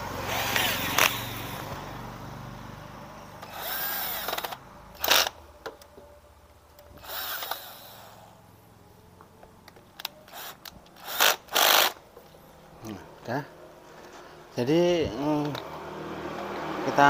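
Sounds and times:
power drill whining: 0.2 - 1.6, 3.4 - 5.4, 7.0 - 8.4, 10.0 - 12.0.

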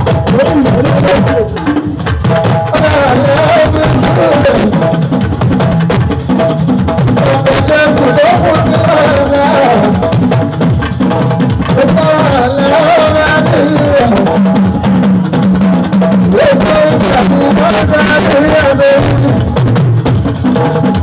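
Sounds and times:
talking drums and hand percussion: 0.0 - 21.0
man singing into microphone: 2.7 - 4.9, 7.2 - 10.1, 11.7 - 14.6, 16.2 - 19.6.

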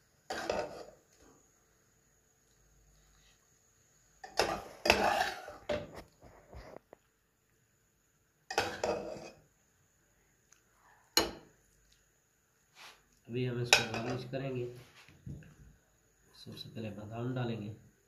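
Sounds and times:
metal spoon scraping ceramic plate: 0.3 - 1.0, 4.2 - 5.7, 8.5 - 9.4.

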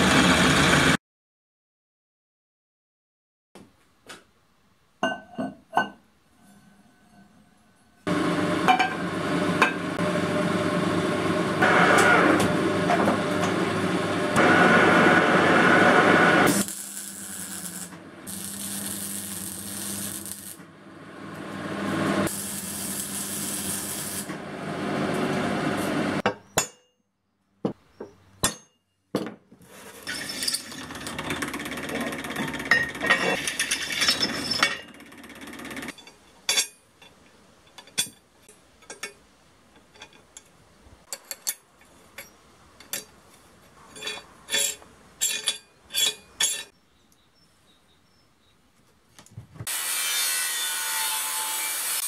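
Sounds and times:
metal lathe running: 8.1 - 17.2
drill press boring steel: 14.3 - 20.6, 22.2 - 24.3
arc welding hiss and crackle: 16.0 - 20.6, 22.2 - 24.4.

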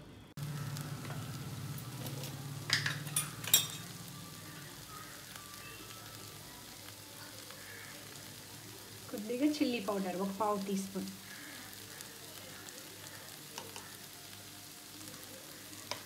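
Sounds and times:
curry sizzling in a pan: 0.4 - 16.0
metal lid clinking: 2.7 - 3.9.

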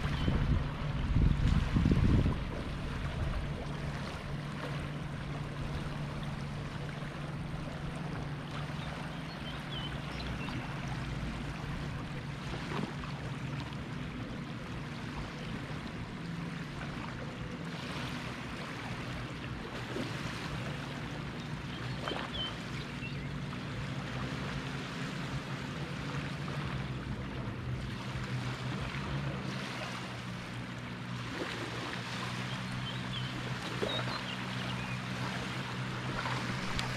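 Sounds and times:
steady low hum: 0.0 - 36.9
waves lapping on shore: 0.0 - 36.9
faint bird chirps: 32.4 - 35.1.

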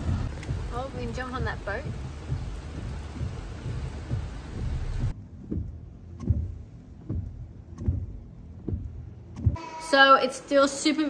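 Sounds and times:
rain pelting a car: 0.0 - 5.1
car low rumble: 0.0 - 9.6
windscreen wipers sweeping: 0.0 - 9.6.

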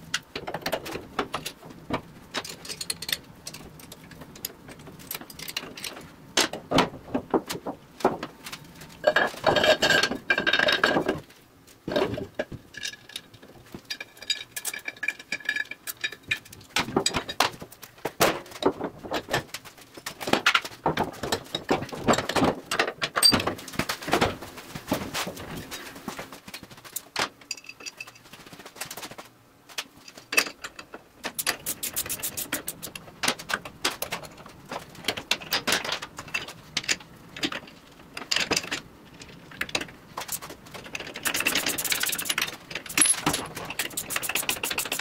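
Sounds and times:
metallic clinks and knocks: 41.1 - 45.0.

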